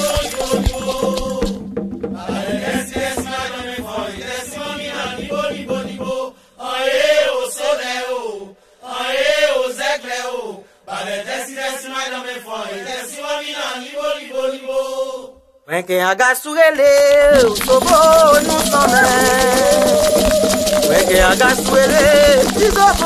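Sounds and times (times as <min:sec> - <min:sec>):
voices chanting: 0:00.0 - 0:01.6, 0:02.2 - 0:15.4, 0:17.2 - 0:23.0
percussion accompaniment: 0:00.0 - 0:07.7, 0:16.8 - 0:23.0.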